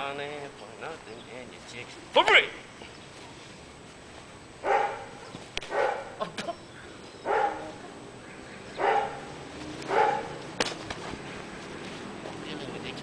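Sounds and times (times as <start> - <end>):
dog barking: 4.6 - 6.2, 7.2 - 7.8, 8.8 - 10.4.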